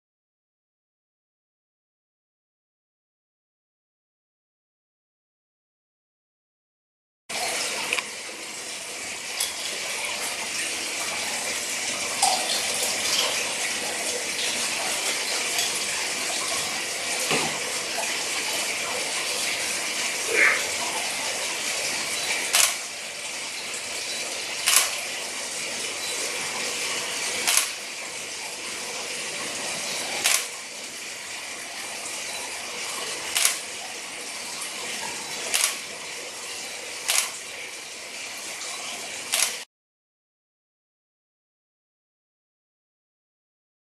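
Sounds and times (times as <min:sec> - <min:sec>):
water rushing and bubbling: 0:11.7 - 0:32.4.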